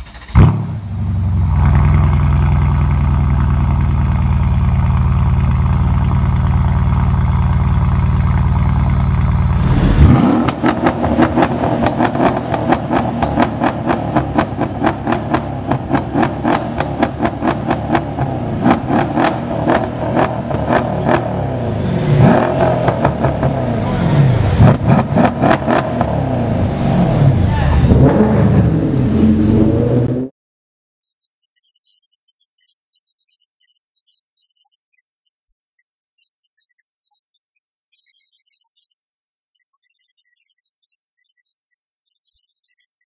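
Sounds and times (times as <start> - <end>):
car engine starting and idling: 0.0 - 30.3
exhaust pops and crackles: 1.5 - 21.5, 22.2 - 24.0, 24.6 - 26.3.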